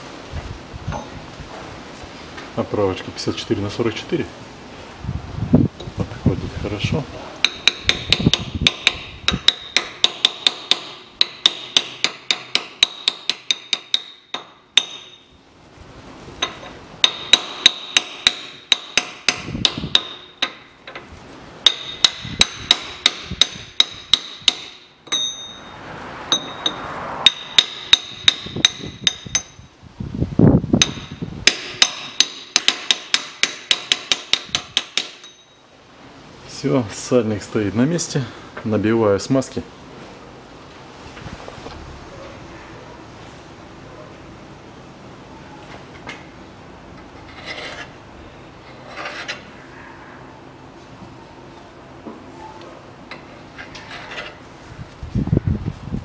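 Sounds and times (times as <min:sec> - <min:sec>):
hammer striking metal: 0:07.4 - 0:15.3, 0:16.4 - 0:21.0, 0:21.6 - 0:29.7, 0:30.8 - 0:35.7.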